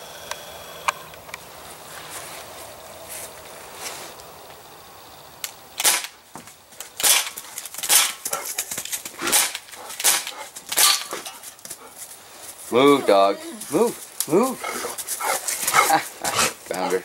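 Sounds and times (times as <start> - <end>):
air pistol sharp pops: 5.4 - 6.2, 7.0 - 8.3, 9.2 - 11.2.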